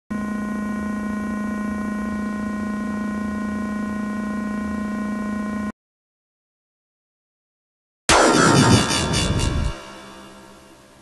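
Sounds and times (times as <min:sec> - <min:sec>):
electronic drone: 0:08.1 - 0:11.0.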